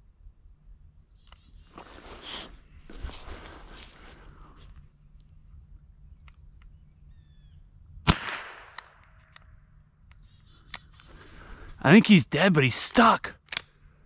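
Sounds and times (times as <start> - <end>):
rifle shot with ring-out: 8.0 - 9.0.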